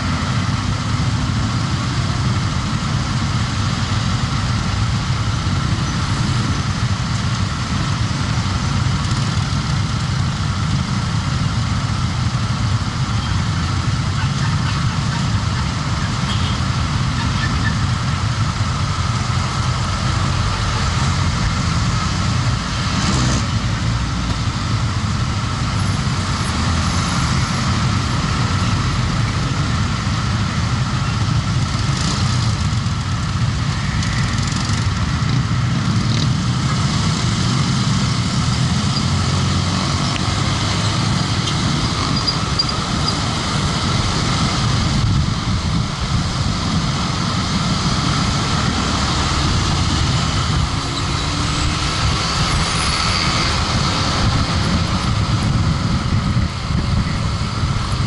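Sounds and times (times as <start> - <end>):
hum of traffic: 0.0 - 58.0
motorcycle engine idling: 0.1 - 20.5.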